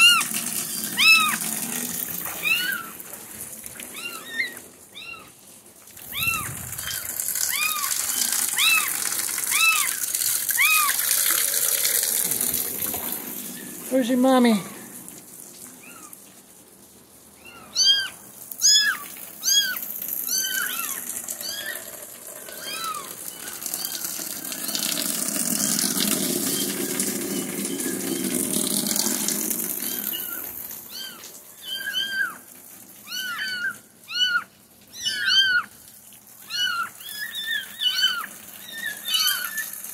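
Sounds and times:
kittens meowing: 0.0s - 1.6s, 2.2s - 3.0s, 3.9s - 5.4s, 6.0s - 11.2s, 15.8s - 16.2s, 17.4s - 24.9s, 29.8s - 35.8s, 36.4s - 39.8s.

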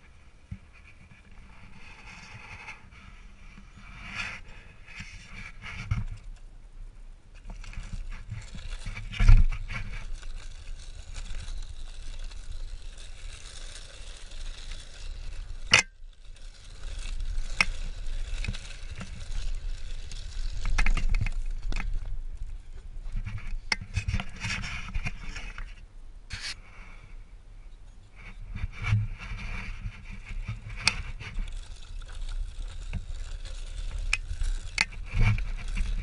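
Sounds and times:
bike tyres crunching over dirt: 7.3s - 27.0s, 28.1s - 36.0s
bike knocks and rattles: 17.2s - 25.7s.

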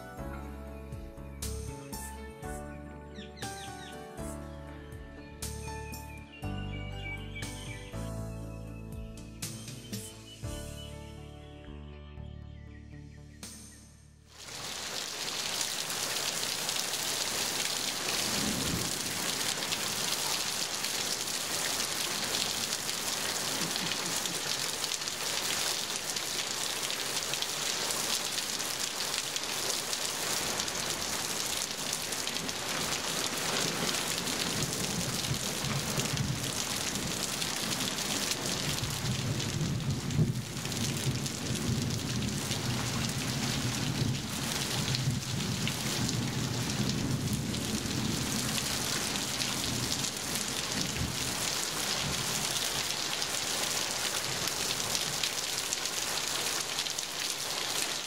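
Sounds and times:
heavy rain on foliage: 14.3s - 58.0s.

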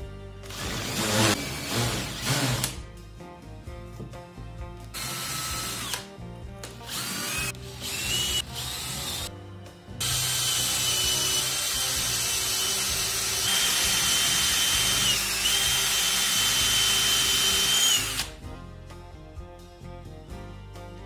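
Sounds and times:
cordless drill driving a screw: 0.5s - 2.8s, 5.0s - 6.1s, 6.8s - 9.3s, 10.0s - 18.3s.

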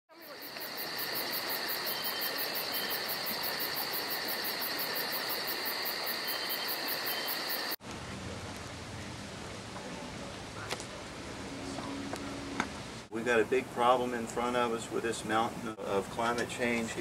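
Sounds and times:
high pulsing insect chirps: 0.1s - 7.8s
insects trilling: 0.1s - 7.8s
faint background noise: 0.1s - 17.0s.

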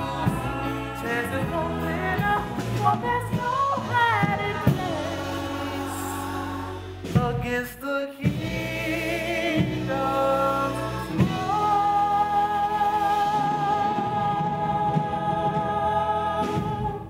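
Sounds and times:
gospel choir singing: 0.0s - 17.0s.

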